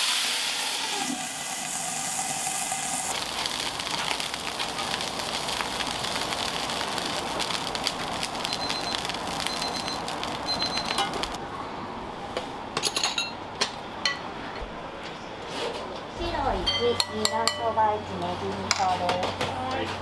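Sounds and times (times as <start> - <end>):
dumplings sizzling in a pan: 0.0 - 11.4.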